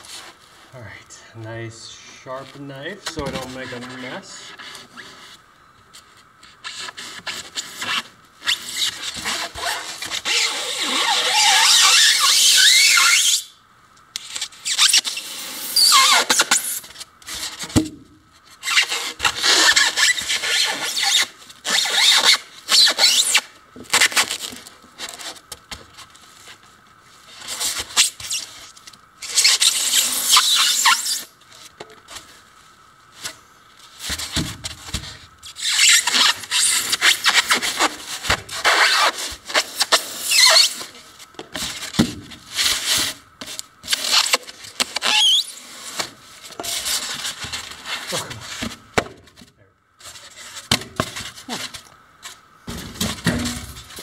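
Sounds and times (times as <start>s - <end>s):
knife sawing squeaking styrofoam: 6.5s - 13.5s, 14.2s - 17.6s, 18.6s - 25.4s, 27.3s - 31.3s, 35.4s - 41.1s, 43.8s - 48.6s.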